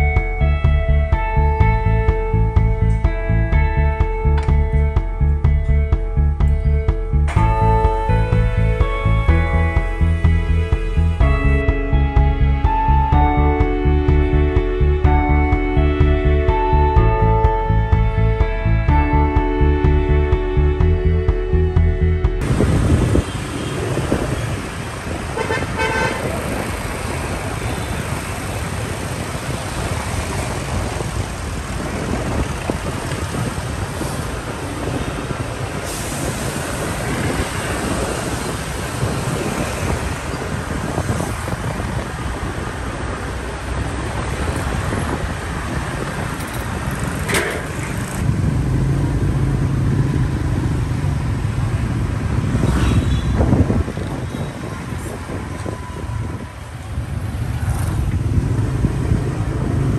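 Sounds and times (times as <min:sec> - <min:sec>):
road traffic noise: 0:00.0 - 0:59.9
car horn toot: 0:25.2 - 0:26.6, 0:52.6 - 0:54.7.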